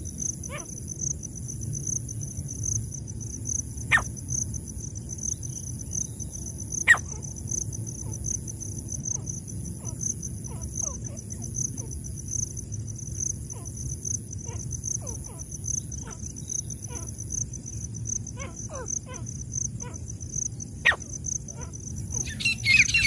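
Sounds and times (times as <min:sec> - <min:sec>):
pulsing insect chorus: 0:00.0 - 0:23.0
sharp loud bird notes: 0:22.3 - 0:23.0.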